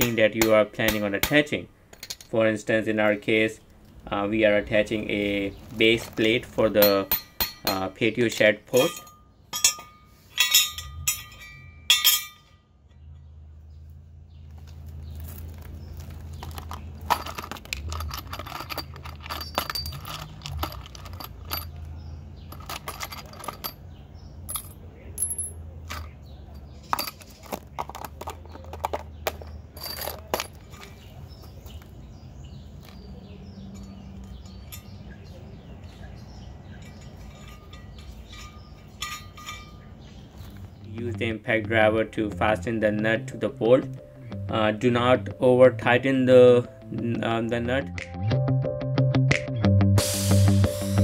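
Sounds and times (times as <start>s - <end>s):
metal parts clinking on concrete: 0.0s - 2.5s, 4.8s - 13.2s, 14.8s - 32.0s, 32.6s - 41.4s.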